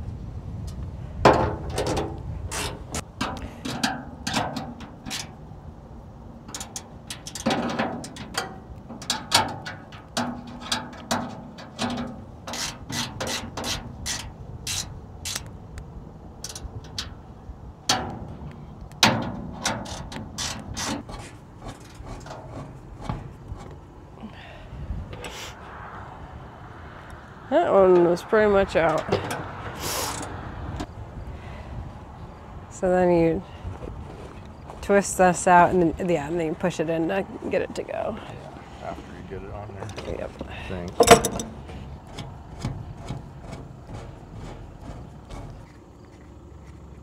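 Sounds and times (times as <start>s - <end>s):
metallic clicks and clanks: 1.3s - 5.4s, 6.4s - 15.5s, 16.4s - 17.2s, 40.8s - 45.7s.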